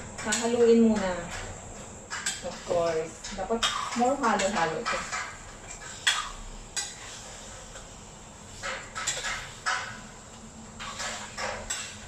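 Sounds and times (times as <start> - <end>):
ladle scraping in a pan: 10.8 - 12.0.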